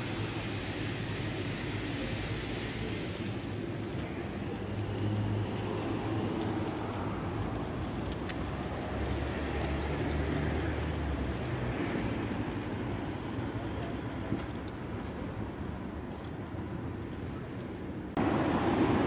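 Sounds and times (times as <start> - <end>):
cars driving past: 3.9 - 13.3, 18.1 - 19.0.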